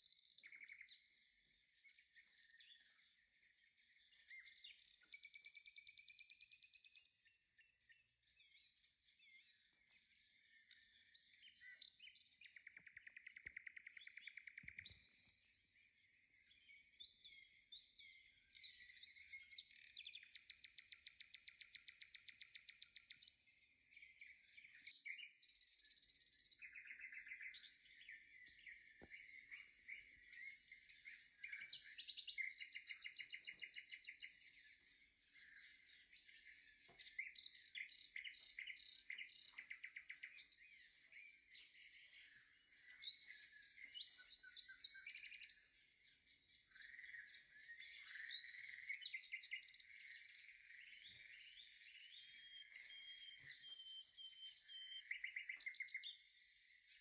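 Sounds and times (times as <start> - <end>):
birds chirping: 0.0 - 57.0
bird trills: 12.4 - 15.2.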